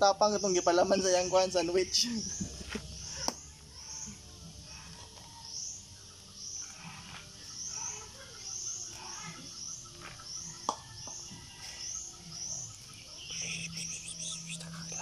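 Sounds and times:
small animal chirping: 12.4 - 15.0.

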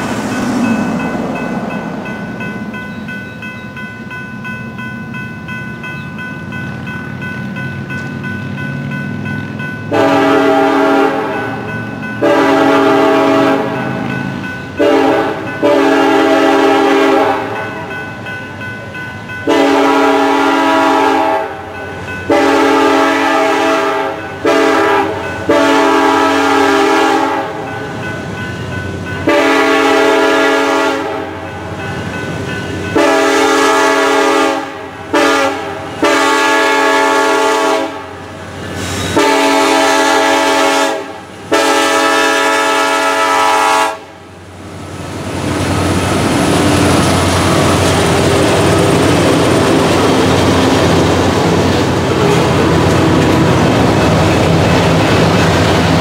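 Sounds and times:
locomotive air horn: 9.9 - 11.6, 12.2 - 13.9, 14.8 - 17.6, 19.5 - 21.6, 22.3 - 27.6, 29.2 - 31.4, 32.9 - 38.2, 39.1 - 44.2.

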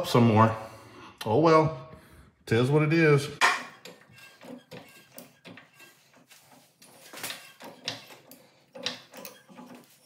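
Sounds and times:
metal clanks and knocks: 3.4 - 10.0
scraping: 3.4 - 10.0.

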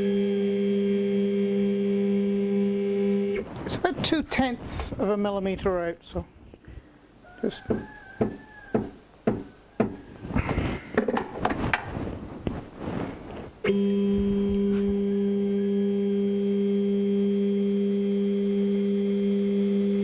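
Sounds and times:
stepper motor whine: 0.0 - 3.4.

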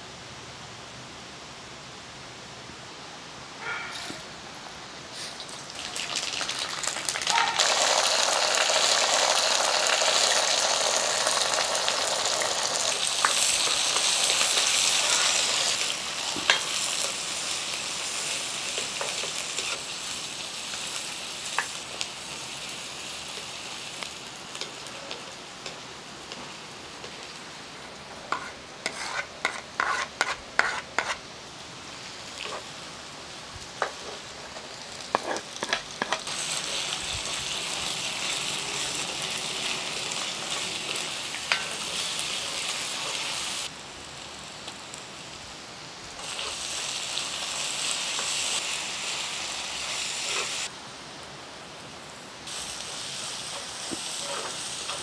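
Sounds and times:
hot oil sizzling in a wok: 5.1 - 55.0
ladle scraping and knocking in pan: 28.3 - 31.2.

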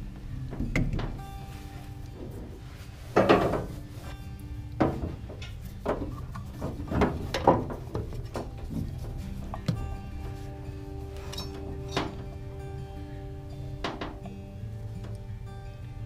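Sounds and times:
rubber hose knocking and rubbing: 0.5 - 12.5.

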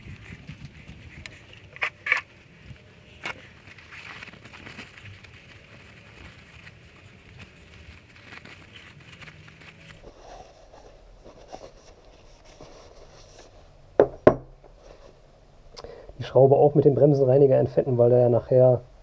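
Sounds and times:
paper towel rustling and rubbing: 0.0 - 13.8.

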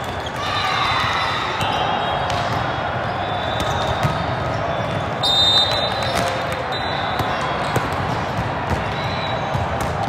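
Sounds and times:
volleyballs hit and bouncing: 0.0 - 10.0
hubbub of distant voices: 5.9 - 10.0.

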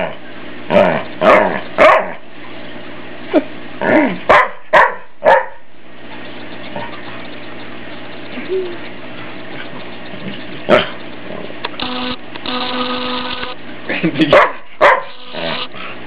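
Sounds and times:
dog barking: 0.8 - 2.2, 4.3 - 5.6, 14.3 - 15.2.

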